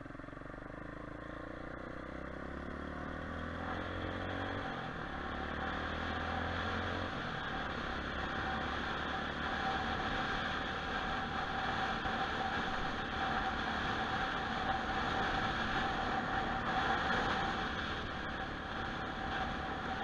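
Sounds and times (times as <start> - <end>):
motorcycle engine running: 0.0 - 20.0
wind and road noise: 0.0 - 20.0
faint steady whine: 6.6 - 20.0.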